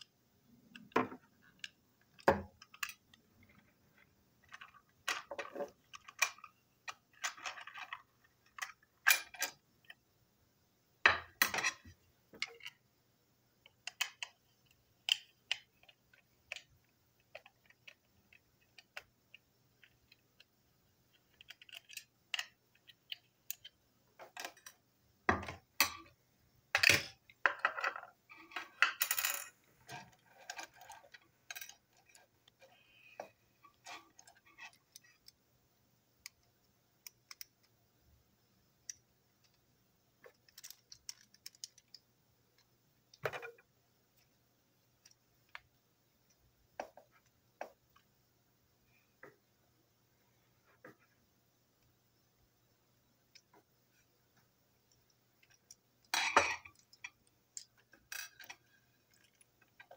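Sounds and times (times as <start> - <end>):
parts rattling and scraping: 26.8 - 35.3
plastic and metal parts clicking: 40.2 - 42.0.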